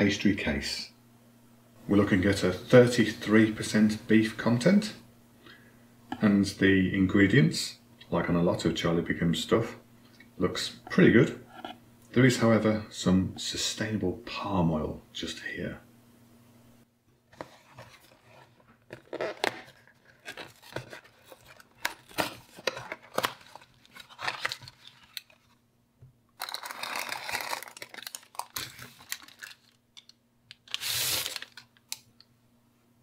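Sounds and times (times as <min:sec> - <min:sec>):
cardboard box being opened: 0:17.4 - 0:25.0
paper tearing and rustling: 0:17.6 - 0:25.5, 0:26.4 - 0:29.8, 0:30.6 - 0:31.7.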